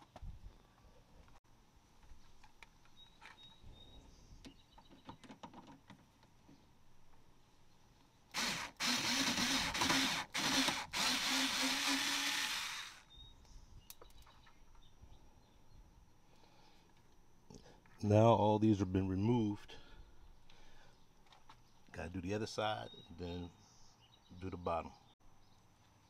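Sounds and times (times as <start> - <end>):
cordless driver whirring: 8.3 - 13.1.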